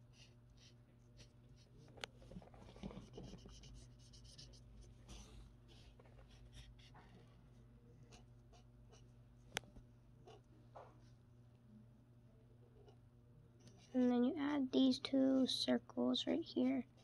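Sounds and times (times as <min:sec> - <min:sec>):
low steady hum: 0:00.0 - 0:17.0
marker drawing on paper: 0:02.7 - 0:07.1.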